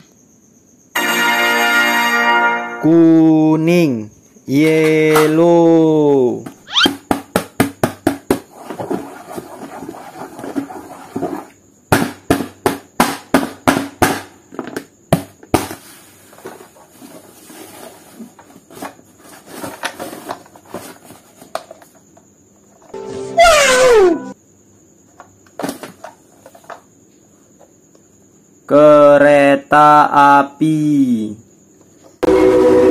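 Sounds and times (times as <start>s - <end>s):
taps on a hard surface: 6.4s - 8.5s.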